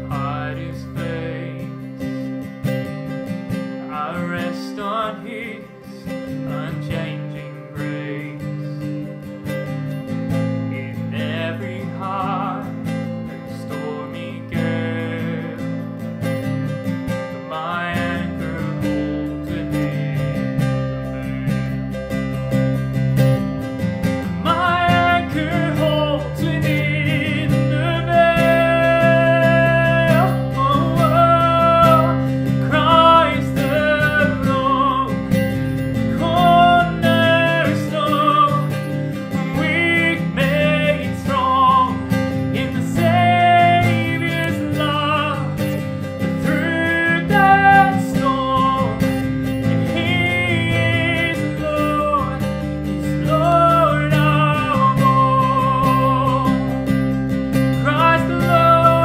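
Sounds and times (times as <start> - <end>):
man singing: 0.0 - 2.4, 3.7 - 22.1, 24.2 - 57.0, 57.6 - 59.0
strummed guitar: 0.0 - 59.0.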